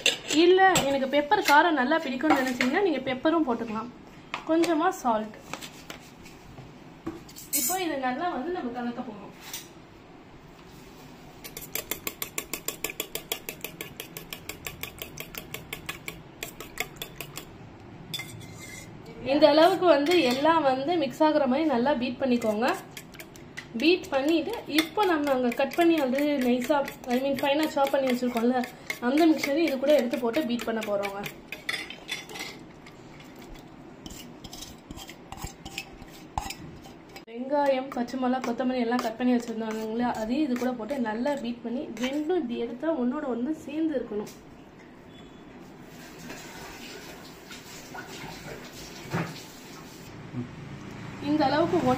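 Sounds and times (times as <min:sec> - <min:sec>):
fork clinking in metal bowl: 0:11.4 - 0:17.5, 0:22.4 - 0:32.6.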